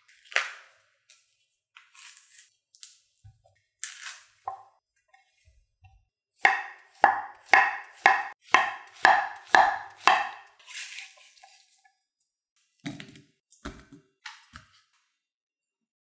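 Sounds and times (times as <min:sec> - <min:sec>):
knife knocking on cutting board: 0:05.8 - 0:10.4
knife scraping board: 0:10.0 - 0:11.8.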